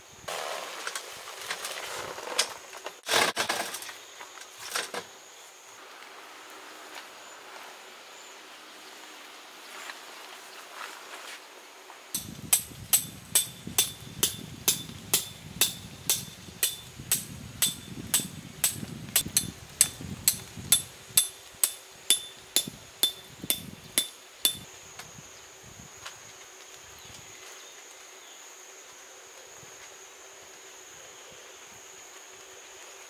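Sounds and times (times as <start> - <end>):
hammer striking metal: 12.2 - 24.7.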